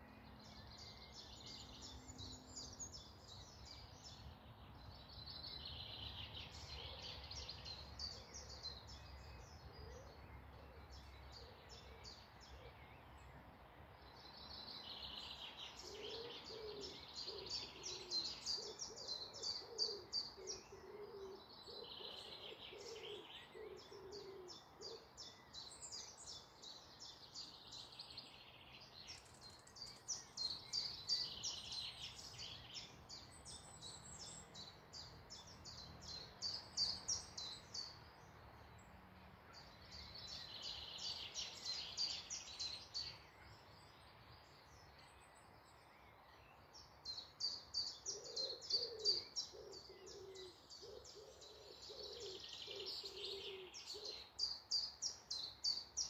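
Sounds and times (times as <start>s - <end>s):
songbirds singing: 0.0s - 56.0s
low repeated bird call: 15.0s - 26.5s.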